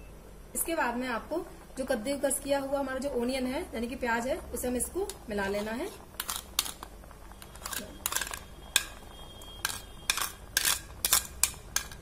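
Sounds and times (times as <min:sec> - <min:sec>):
metal spoon scraping plastic bowl: 0:05.5 - 0:09.0, 0:09.6 - 0:12.0.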